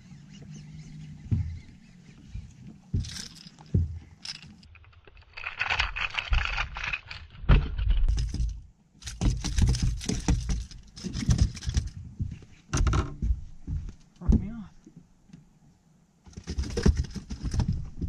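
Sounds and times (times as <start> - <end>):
fishing lure hooks jangling: 3.0 - 7.1.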